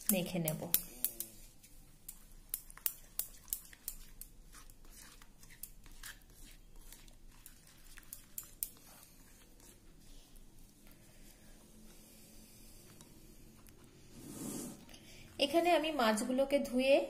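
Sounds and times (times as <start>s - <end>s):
spoon clicking against metal bowl: 0.1s - 1.3s.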